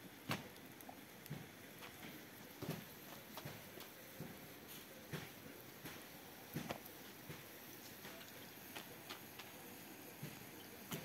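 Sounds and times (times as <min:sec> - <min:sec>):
faint hiss: 0:00.0 - 0:11.0
flatbread sheets tapping and rustling: 0:01.3 - 0:09.6.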